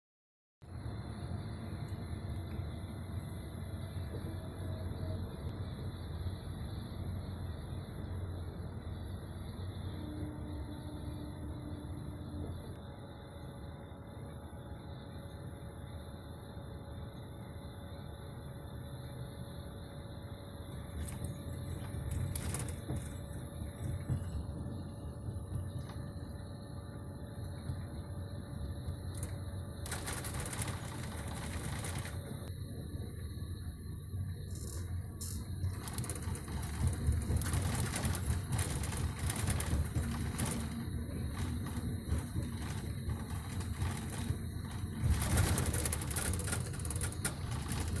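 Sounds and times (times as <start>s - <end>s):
bus road and engine rumble: 0.7s - 48.0s
clicks and rattles: 34.5s - 48.0s.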